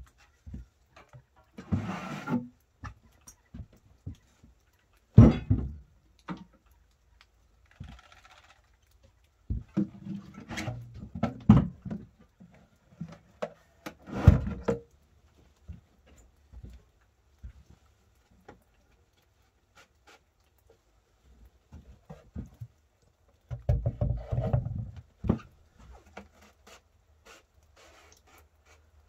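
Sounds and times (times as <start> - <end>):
wooden knocks and thunks: 0.4 - 4.3, 5.1 - 6.5, 9.5 - 12.3, 13.0 - 14.9, 23.4 - 26.4.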